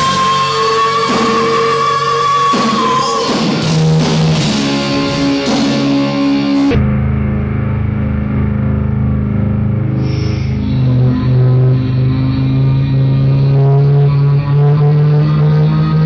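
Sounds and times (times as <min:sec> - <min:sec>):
drums: 0:00.0 - 0:11.3
electric guitar: 0:00.0 - 0:16.0
muffled low droning chord: 0:03.8 - 0:16.0.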